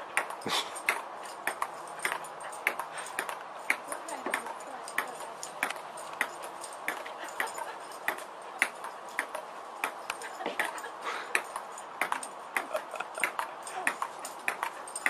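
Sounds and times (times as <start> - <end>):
table tennis ball bouncing: 11.4 - 14.7.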